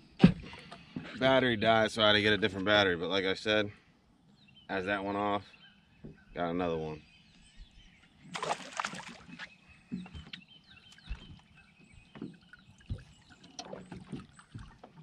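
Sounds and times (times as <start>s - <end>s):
knocks and thumps on boat: 0.2s - 1.2s, 8.4s - 15.0s
birds chirping: 0.6s - 15.0s
rushing splash: 8.3s - 9.2s.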